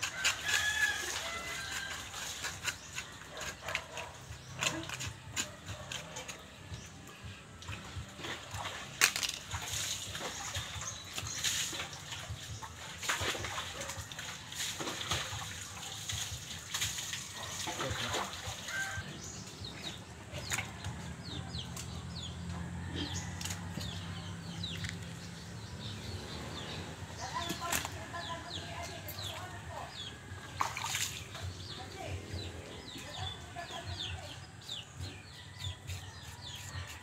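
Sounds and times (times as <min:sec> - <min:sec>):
knife scraping hair off carcass: 0:00.0 - 0:06.6, 0:35.0 - 0:37.0
water splashing in basin: 0:07.6 - 0:19.0, 0:29.0 - 0:31.6.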